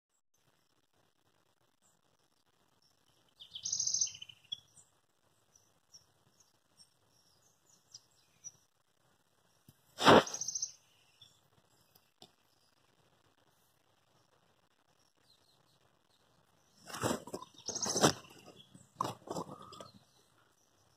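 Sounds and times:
birds chirping: 2.8s - 8.7s, 9.4s - 12.8s, 15.0s - 20.9s
sharp loud noise: 10.0s - 10.5s.

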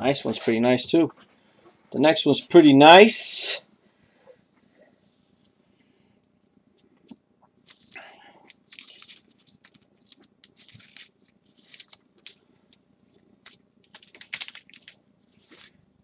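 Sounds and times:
cards and plastic holders rustling: 7.7s - 12.8s, 13.4s - 15.8s.

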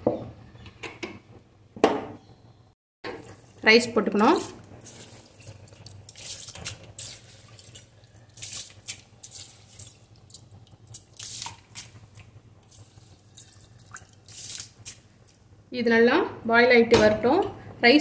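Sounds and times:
water boiling and bubbling: 3.0s - 16.2s.

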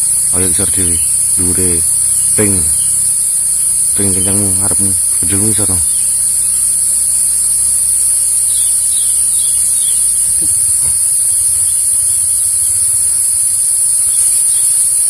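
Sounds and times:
faint low hum: 0.0s - 15.0s
insects droning: 0.0s - 15.0s.

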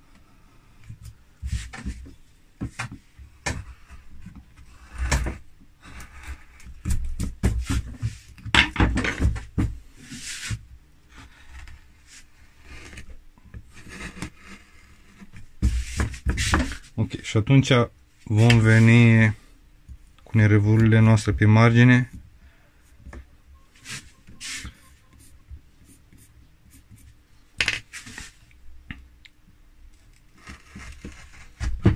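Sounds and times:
chisel scraping wood: 4.6s - 6.7s, 11.1s - 13.1s, 13.7s - 16.8s, 30.2s - 31.9s.

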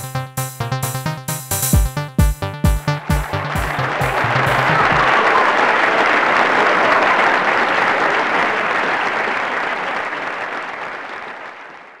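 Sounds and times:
crowd applause: 2.7s - 12.0s.

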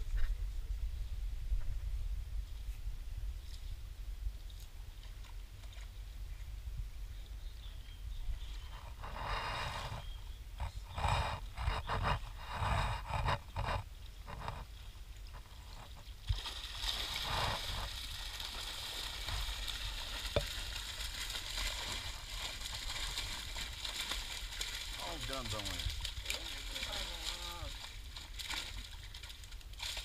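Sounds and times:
water sloshing: 15.1s - 30.0s
fish thrashing and splashing: 15.6s - 30.0s.

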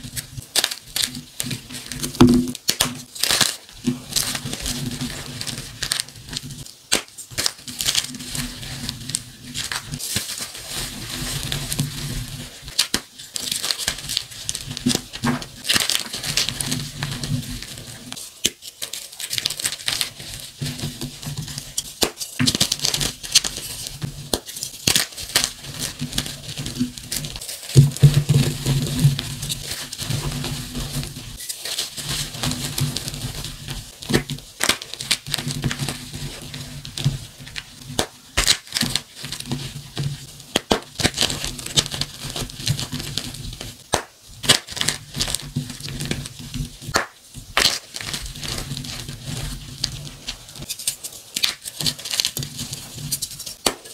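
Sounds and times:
chalk blocks crunching in hands: 40.4s - 53.9s.

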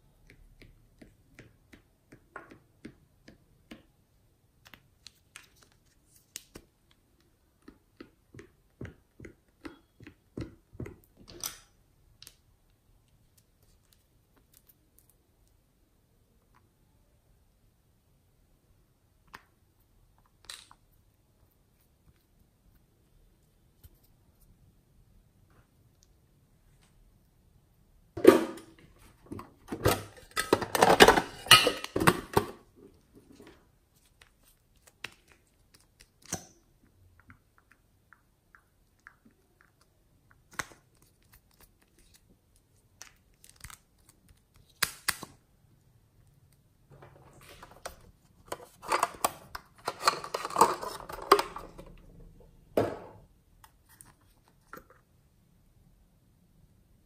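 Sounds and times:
crackly crinkling noise: 37.0s - 45.3s.

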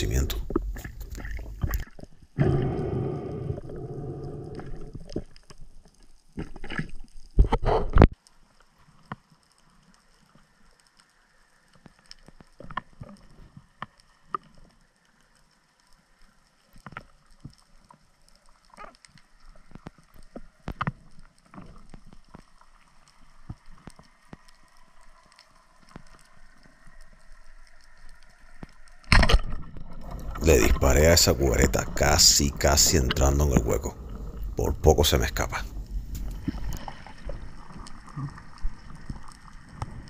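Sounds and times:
low underwater hiss: 0.0s - 6.4s, 30.0s - 40.0s.

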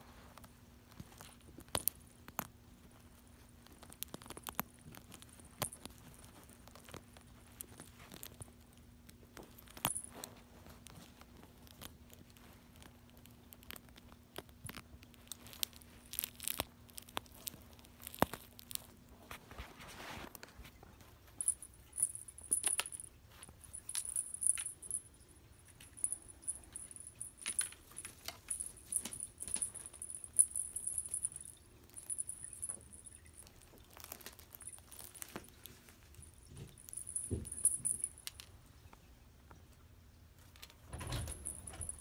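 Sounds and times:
wrapping paper crinkling: 2.9s - 25.0s, 26.0s - 38.2s.

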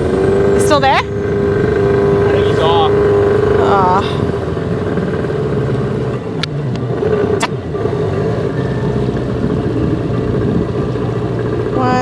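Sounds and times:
outboard motor running: 0.0s - 12.0s.

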